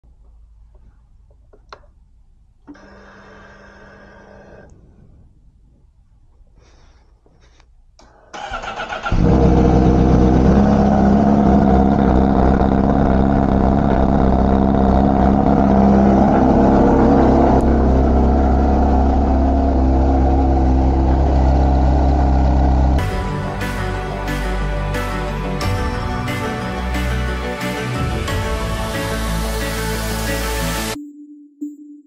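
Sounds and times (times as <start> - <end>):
motorcycle starter cranking: 8.3 - 9.4
motorcycle engine idling: 9.0 - 23.0.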